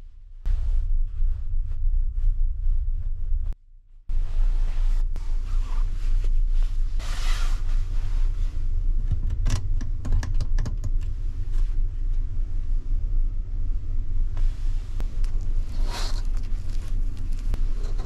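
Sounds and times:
fabric brushing: 4.1s - 8.7s
ferry engines rumbling: 10.9s - 18.0s.

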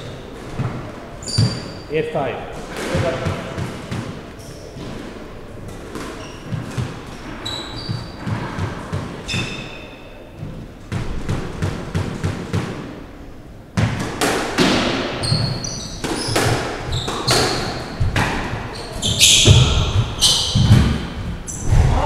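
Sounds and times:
shoes squeaking on floor: 0.0s - 10.8s, 15.1s - 21.7s
racket and ball echoing cracks: 2.5s - 9.8s, 13.8s - 22.0s
ball bouncing on wooden floor: 2.6s - 5.0s, 13.8s - 21.9s.

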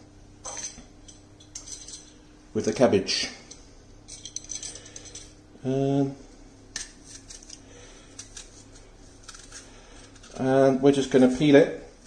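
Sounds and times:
knife scraping apple skin: 6.8s - 10.7s.

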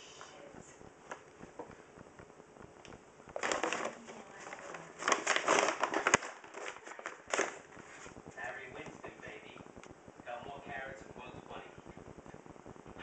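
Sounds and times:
paper bag crackling: 3.3s - 8.2s.

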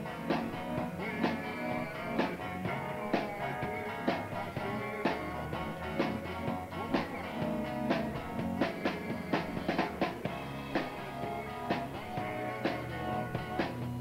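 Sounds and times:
rock and roll guitar and drums: 0.0s - 14.0s.

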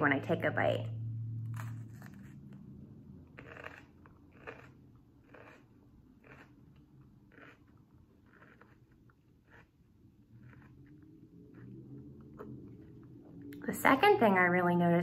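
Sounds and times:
bell pepper crunching: 3.3s - 13.1s.

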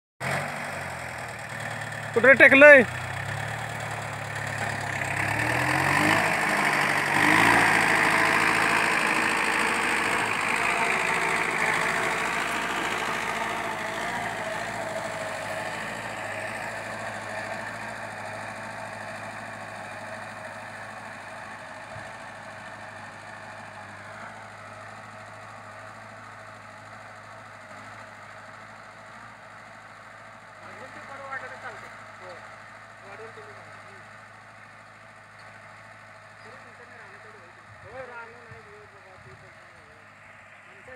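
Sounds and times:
tractor diesel engine under load: 0.2s - 40.9s.

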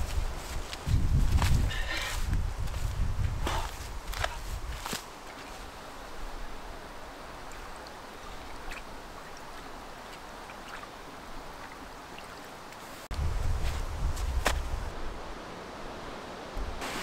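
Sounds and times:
stream babbling over rocks: 5.1s - 13.1s
faint water drips: 6.3s - 13.0s
small splashes: 7.4s - 13.0s.

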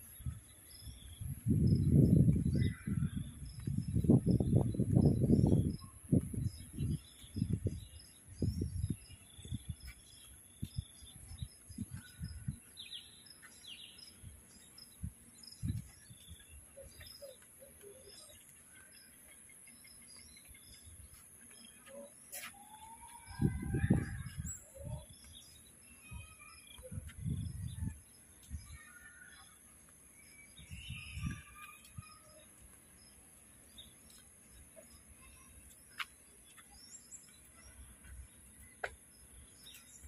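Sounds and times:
birds chirping: 0.0s - 40.0s.

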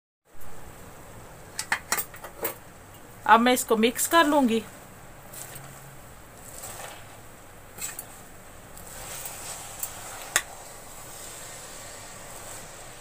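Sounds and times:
spinach leaves rustling: 4.2s - 10.3s.

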